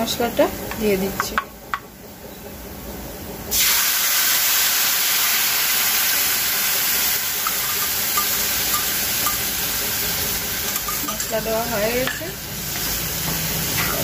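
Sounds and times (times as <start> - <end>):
paste sizzling in hot oil: 3.5 - 14.0.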